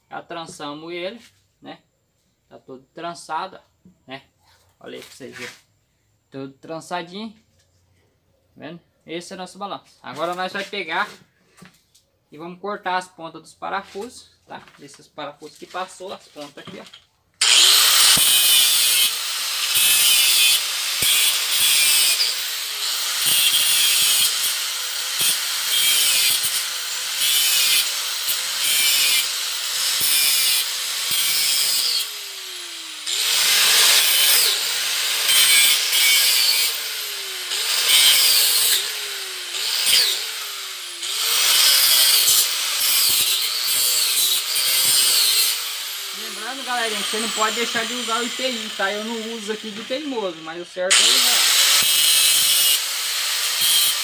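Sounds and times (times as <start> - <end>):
angle grinder cutting metal: 15.6 - 54.0.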